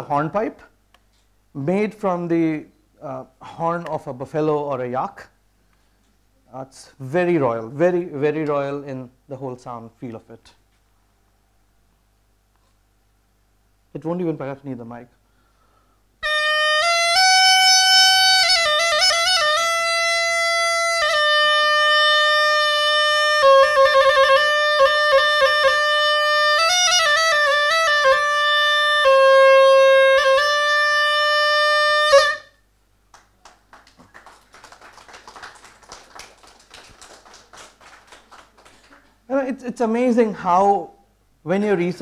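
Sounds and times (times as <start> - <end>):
reed hornpipe playing trilled notes: 16.2 - 32.6.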